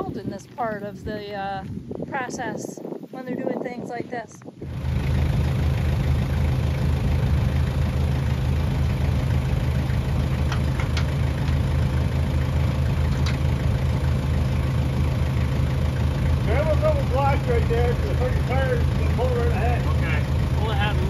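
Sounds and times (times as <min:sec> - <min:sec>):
tractor engine idling: 0:04.6 - 0:21.0.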